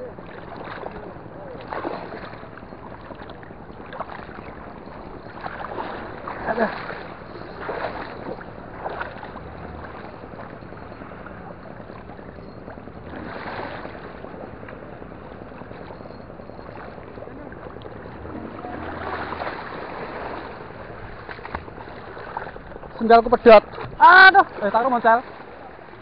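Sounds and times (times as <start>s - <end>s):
person wading through water: 0.0s - 26.0s.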